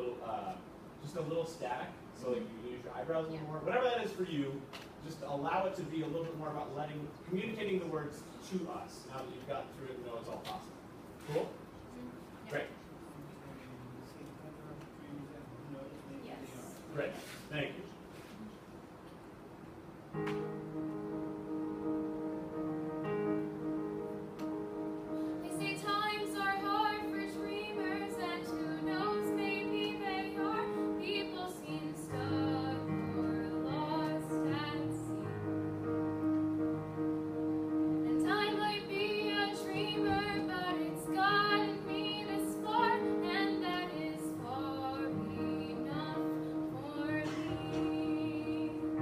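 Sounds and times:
sustained instrumental chords: 20.3 - 25.5
girl singing: 25.4 - 35.4, 38.1 - 49.0.

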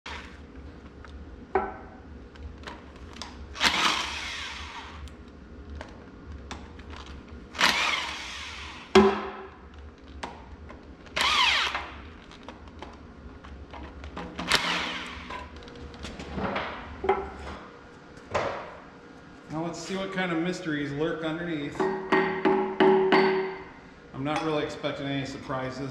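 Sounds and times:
steady low hum: 0.1 - 25.9
sharp metal knocks: 21.8 - 23.6.

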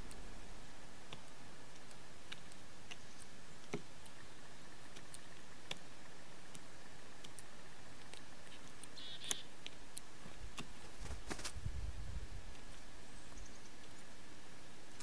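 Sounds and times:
bird pecking on wood: 1.1 - 4.2.

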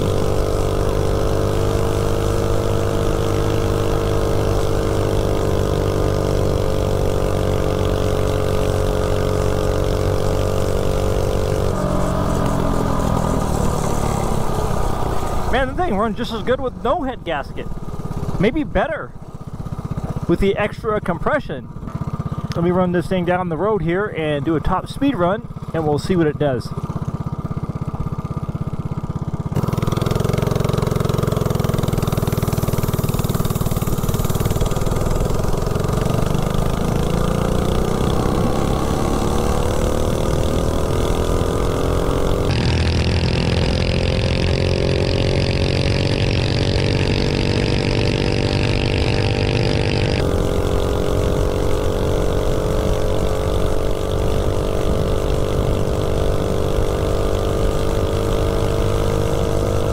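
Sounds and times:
small engine revving at full throttle: 0.0 - 18.6, 21.8 - 59.9.

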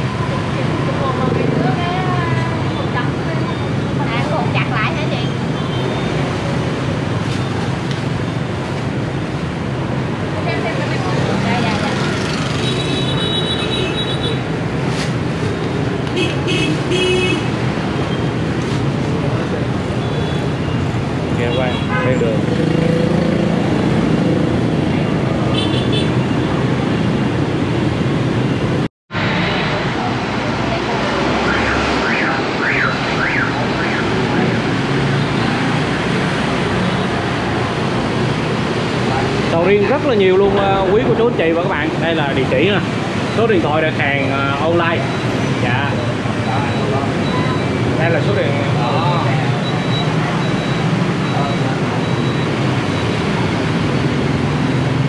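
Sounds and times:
road traffic noise: 0.0 - 55.0
vehicle horns: 12.6 - 14.4, 16.2 - 17.6, 21.4 - 22.4, 25.5 - 26.4
electronic siren wailing: 31.4 - 34.7.

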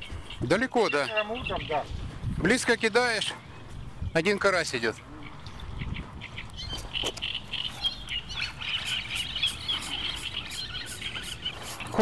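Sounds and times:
birds chattering: 0.0 - 12.0
wind rumble on microphone: 1.3 - 2.8, 3.5 - 4.3, 5.0 - 7.5.

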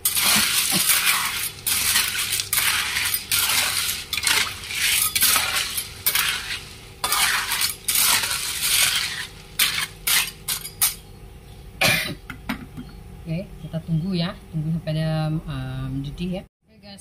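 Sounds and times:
shells rattling in a wok: 0.0 - 11.0.

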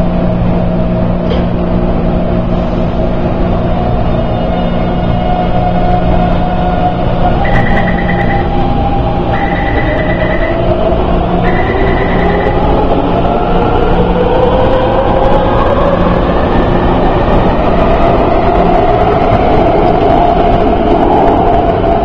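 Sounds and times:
train wheels rumbling on rail: 0.0 - 22.0
train motor whine rising: 4.8 - 13.3.

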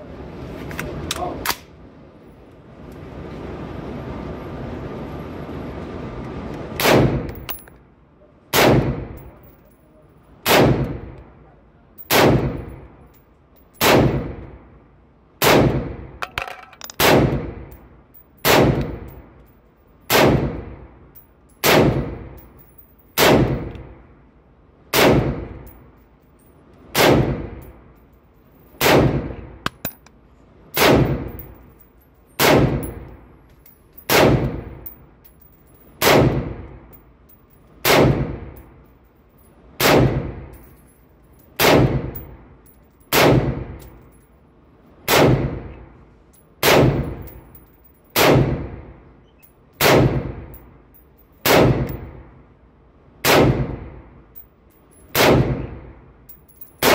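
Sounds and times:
rifle shots echoing: 6.8 - 7.3, 8.5 - 9.2, 10.4 - 11.2, 12.1 - 12.8, 13.8 - 14.4, 15.4 - 17.7, 18.4 - 19.1, 20.1 - 20.8, 21.6 - 22.3, 23.2 - 23.8, 24.9 - 25.6, 26.9 - 27.6, 28.8 - 29.9, 30.8 - 31.5, 32.4 - 33.1, 34.1 - 34.8, 36.0 - 36.8, 37.8 - 38.6, 39.8 - 40.5, 41.6 - 42.3, 43.1 - 43.8, 45.1 - 45.7, 46.6 - 47.2, 48.2 - 48.8, 49.8 - 50.5, 51.4 - 52.2, 53.2 - 54.0, 55.1 - 55.9.

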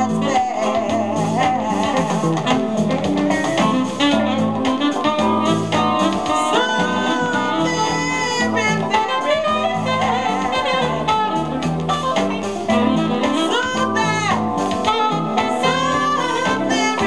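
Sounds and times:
jazzy soul record on turntable: 0.0 - 17.0.

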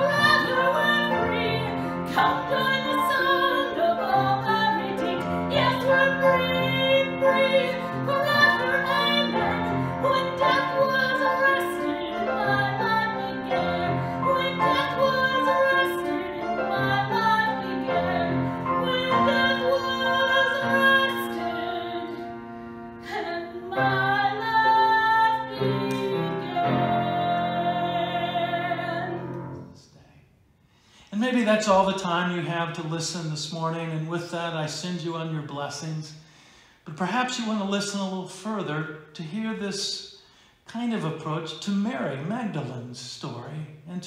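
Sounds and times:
woman singing: 0.0 - 29.5.

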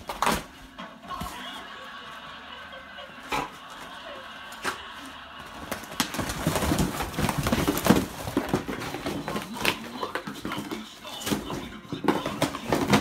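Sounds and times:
paper bag rustling: 4.8 - 13.0.

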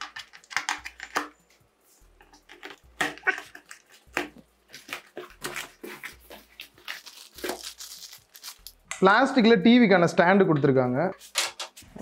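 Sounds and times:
knife cutting packing tape: 2.6 - 8.8.

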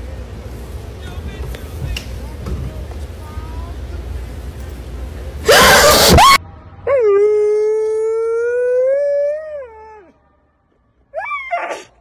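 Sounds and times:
harsh noise burst with squeal: 5.4 - 6.4.

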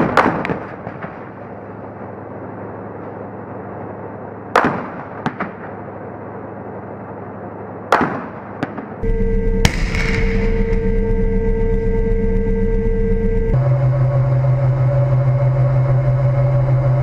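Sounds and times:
loud echoing gunshots: 0.0 - 1.4, 4.5 - 5.8, 7.9 - 9.0, 9.6 - 10.8
steady hum: 9.0 - 17.0
tank engine hum: 9.0 - 17.0
lighter gunshot cracks: 9.7 - 10.4.

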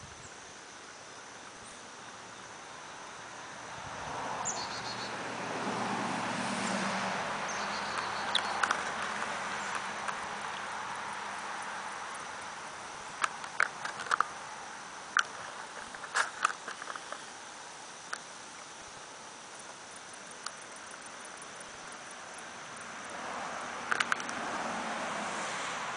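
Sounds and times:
steady hiss: 0.0 - 25.9
small sharp clicks and taps: 23.9 - 24.4.

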